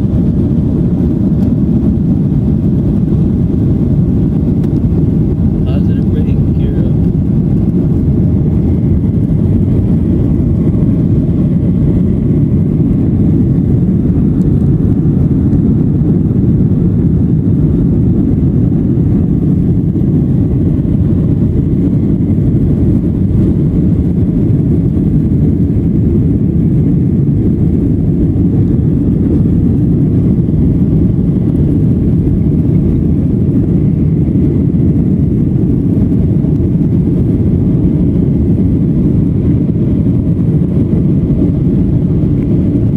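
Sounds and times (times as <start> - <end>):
airplane cabin engine rumble: 0.0 - 42.9
rushing airflow: 0.0 - 42.9.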